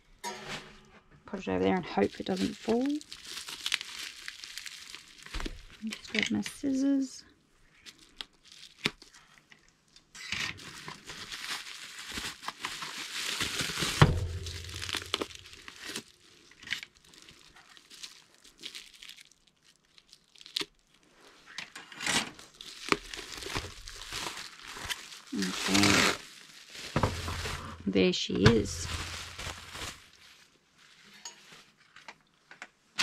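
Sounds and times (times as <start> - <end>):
bubble wrap crinkling: 1.8 - 21.6, 22.3 - 32.5
loud thump: 14.0 - 14.8, 27.0 - 27.8.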